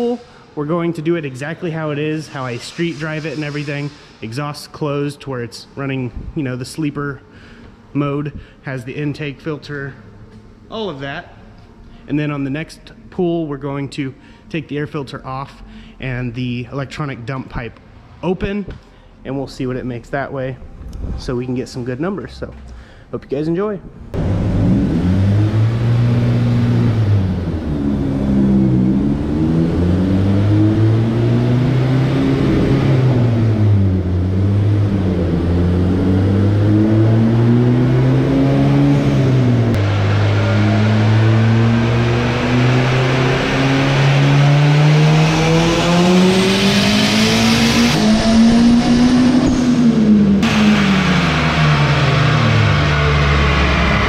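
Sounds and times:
turbocharged engine revving: 0.0s - 6.8s, 24.1s - 54.0s.

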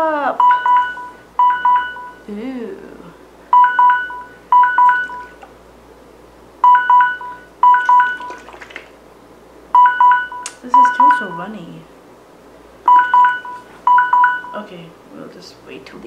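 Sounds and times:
electronic alarm beeping: 0.4s - 2.3s, 3.5s - 5.4s, 6.6s - 8.4s, 9.8s - 11.6s, 12.9s - 14.6s.

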